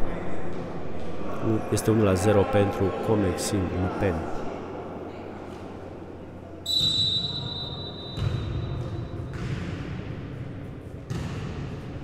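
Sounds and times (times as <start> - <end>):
murmur of sports hall: 0.0 - 12.0
referee's whistle blast: 6.7 - 8.7.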